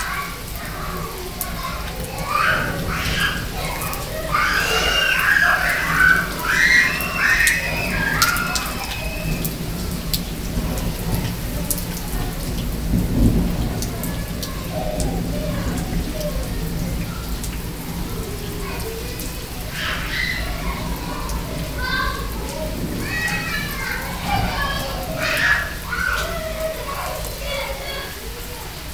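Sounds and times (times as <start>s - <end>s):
heavy rain pattering: 0.0s - 28.9s
thunder rumbling: 0.0s - 28.9s
high-pitched calls: 2.5s - 9.6s.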